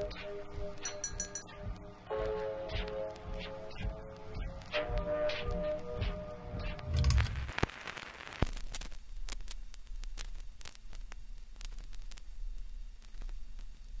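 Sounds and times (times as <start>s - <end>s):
crackling static hiss: 1.5s - 14.0s
low hum: 6.1s - 7.6s.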